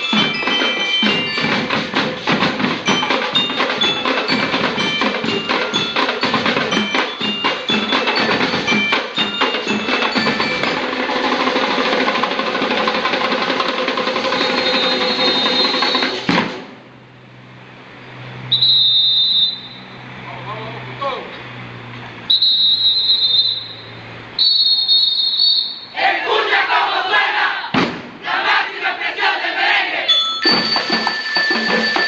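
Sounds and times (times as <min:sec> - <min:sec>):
drum roll: 0:00.0 - 0:16.8, 0:30.4 - 0:32.0
marching band drums: 0:00.0 - 0:16.8, 0:26.4 - 0:28.9, 0:30.4 - 0:32.0
bell lyre notes: 0:02.8 - 0:11.1, 0:30.1 - 0:32.0
whistle blast: 0:14.2 - 0:16.3, 0:18.5 - 0:20.0, 0:22.3 - 0:26.0.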